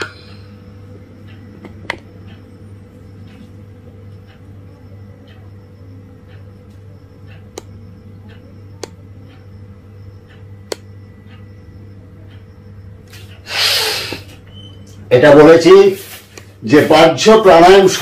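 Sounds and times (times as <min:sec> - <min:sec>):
low hum: 0:00.0 - 0:15.6
sharp clicks: 0:06.3 - 0:09.5, 0:10.2 - 0:11.5.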